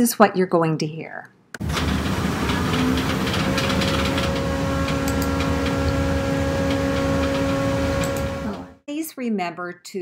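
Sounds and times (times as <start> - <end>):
humming tones: 1.6 - 8.8
printer mechanical whir: 1.6 - 8.8.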